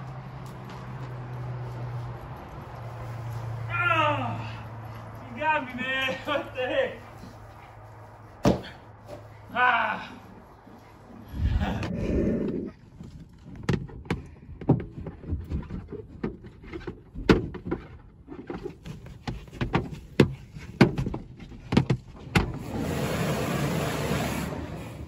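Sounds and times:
pressure wand water spray hissing: 22.6s - 25.0s.

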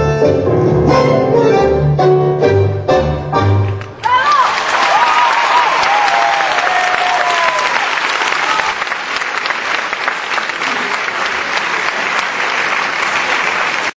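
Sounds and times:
audience applauding: 3.8s - 13.9s.

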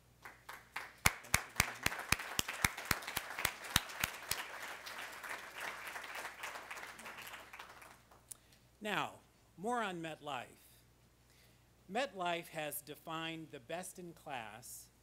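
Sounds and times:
audience applauding: 0.2s - 8.2s
man clapping close to microphone: 0.2s - 8.3s.

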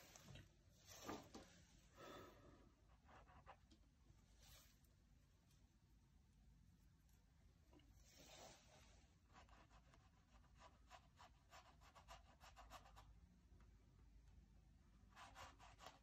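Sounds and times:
scratchy strokes on canvas: 8.0s - 12.8s.

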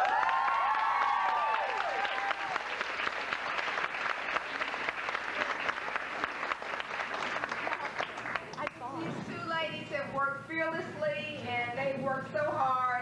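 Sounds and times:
high cheering voices: 0.0s - 3.1s
audience applauding: 0.0s - 8.8s.

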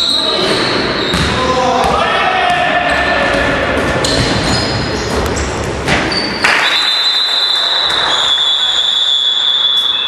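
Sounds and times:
basketball striking hoop: 1.1s - 1.4s
referee's whistle blast: 6.4s - 10.0s.

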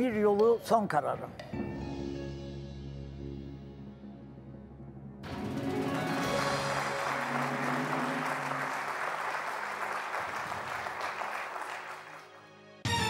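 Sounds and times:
audience applauding: 5.8s - 12.5s.

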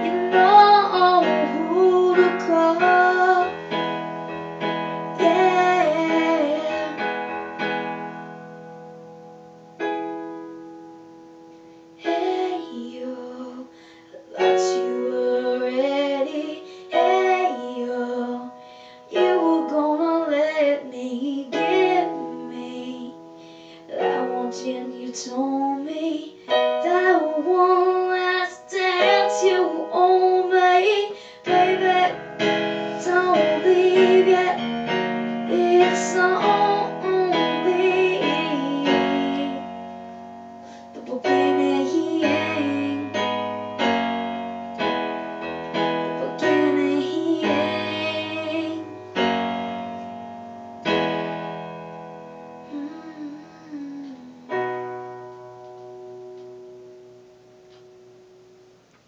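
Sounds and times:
person singing: 0.0s - 7.7s, 12.0s - 40.1s, 40.8s - 43.4s, 46.0s - 49.3s, 52.6s - 55.0s
piano chords: 0.0s - 59.0s.

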